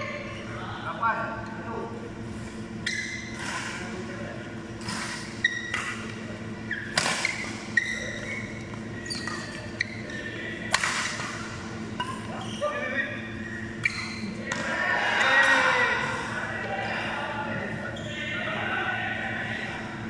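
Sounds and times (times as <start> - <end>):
shoes squeaking on court floor: 2.6 - 3.8, 4.9 - 10.4, 11.0 - 14.4
racket striking shuttlecock: 6.9 - 7.4, 10.7 - 11.4.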